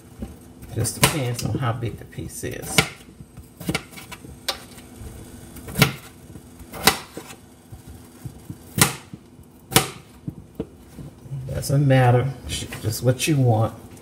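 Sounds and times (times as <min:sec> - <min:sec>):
knife chopping on metal sheet: 0:00.8 - 0:01.5, 0:02.6 - 0:04.9, 0:05.7 - 0:07.4, 0:08.2 - 0:10.4.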